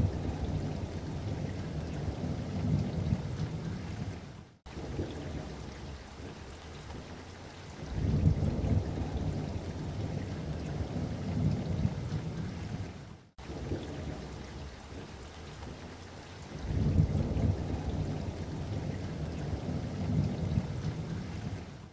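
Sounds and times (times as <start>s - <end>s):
low rumbling noise: 0.0s - 3.8s.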